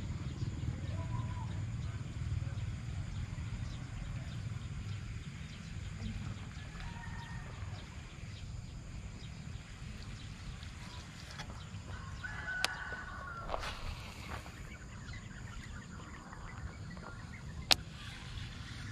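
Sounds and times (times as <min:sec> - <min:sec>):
wind rumble on microphone: 0:00.0 - 0:18.9
rooster crowing: 0:06.4 - 0:08.1, 0:11.9 - 0:14.4.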